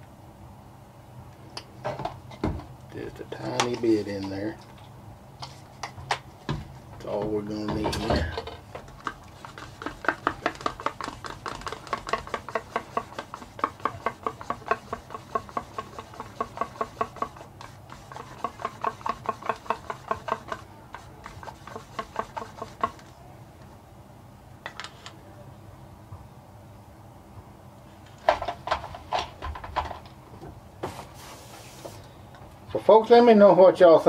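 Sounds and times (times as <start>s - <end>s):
stick ticking against paint cup: 9.0s - 23.0s.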